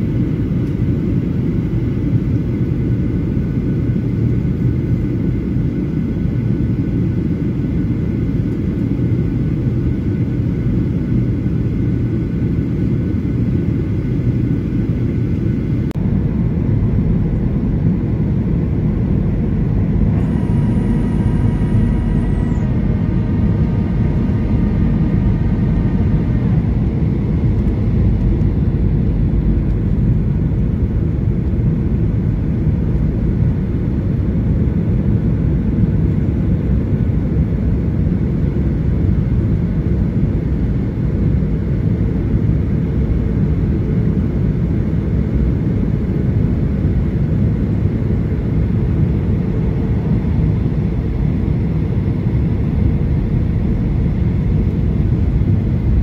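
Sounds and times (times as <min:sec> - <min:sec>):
airflow over airframe: 0:00.0 - 0:56.0
airplane cabin engine rumble: 0:00.0 - 0:56.0
faint high whine: 0:15.4 - 0:34.7.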